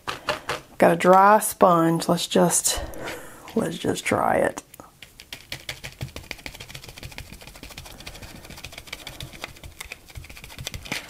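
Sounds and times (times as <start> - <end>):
sponge tapping through stencil: 5.1 - 11.0.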